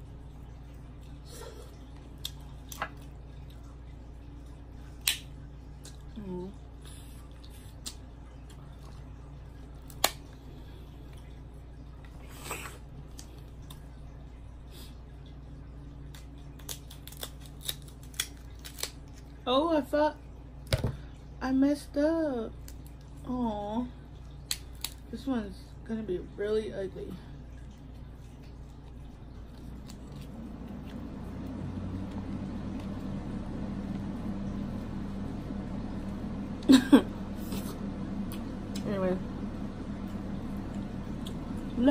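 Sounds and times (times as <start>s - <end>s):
steady low hum: 0.0s - 41.9s
crab shell clicks and cracks: 5.0s - 5.3s, 9.9s - 10.2s, 16.2s - 19.0s, 24.4s - 25.0s
crab shell snapping: 5.0s - 5.3s, 9.9s - 10.2s, 24.4s - 25.0s.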